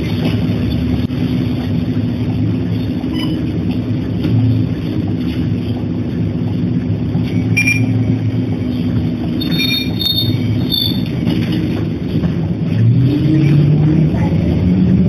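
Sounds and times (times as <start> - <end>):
bus body rumbling: 0.0 - 15.0
bus engine running low: 0.0 - 15.0
high squeals: 9.4 - 11.4.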